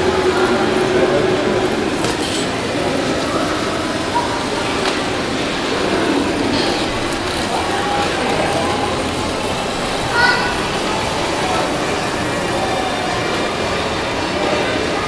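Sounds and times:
murmur of many voices: 0.0s - 15.0s.

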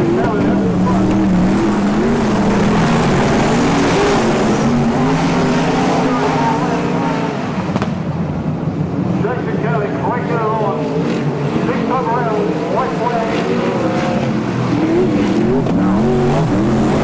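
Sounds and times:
race car engines: 0.0s - 17.0s.

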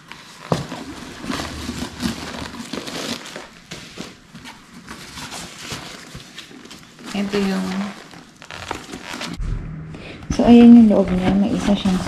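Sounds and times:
bag rustling and crinkling: 0.0s - 9.4s.

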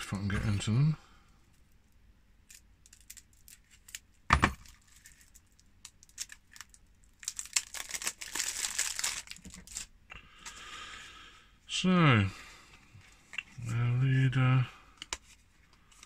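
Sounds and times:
plastic wrap crinkling: 2.5s - 9.9s.

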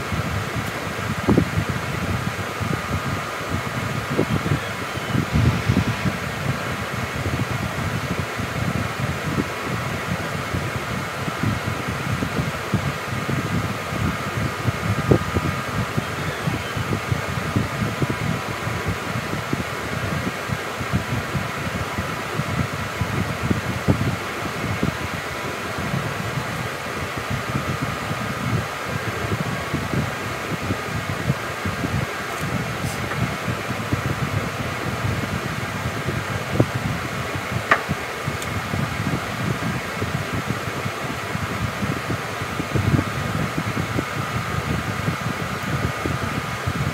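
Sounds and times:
fan whirring: 0.0s - 46.9s.

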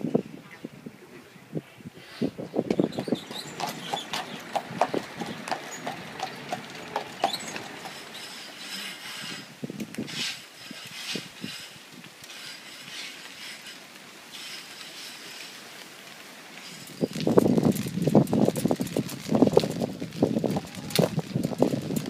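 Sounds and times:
horse hooves clip-clopping: 2.7s - 10.1s, 14.5s - 22.0s.

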